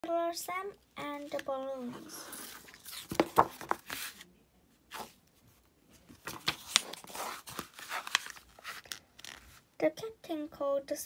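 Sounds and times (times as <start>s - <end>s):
book pages rustling: 1.0s - 4.3s, 4.9s - 9.6s.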